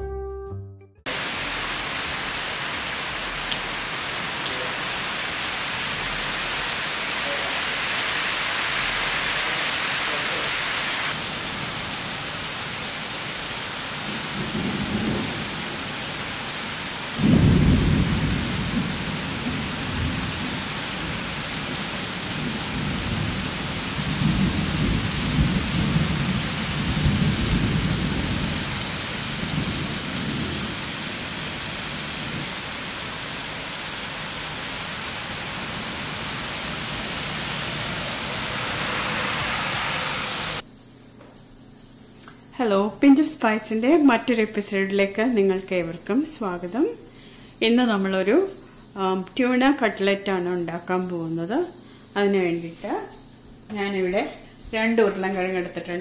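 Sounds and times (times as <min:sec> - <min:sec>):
steady rain falling: 0:01.1 - 0:40.6
thunder clap and rumble: 0:14.1 - 0:15.8, 0:17.2 - 0:21.3, 0:22.3 - 0:30.9.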